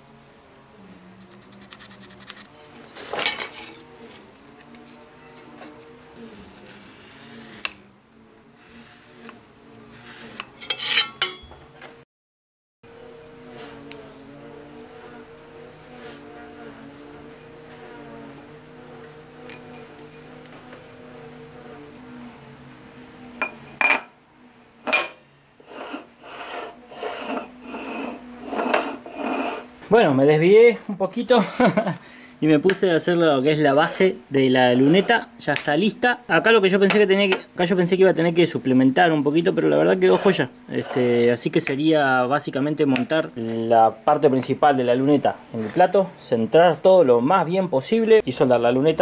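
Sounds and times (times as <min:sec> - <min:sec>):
metal scraping and clinking: 0:01.4 - 0:03.9, 0:10.0 - 0:11.6, 0:24.8 - 0:29.7
ringing metal-on-metal rasping: 0:10.0 - 0:11.6
steel plate clinking: 0:10.6 - 0:11.5.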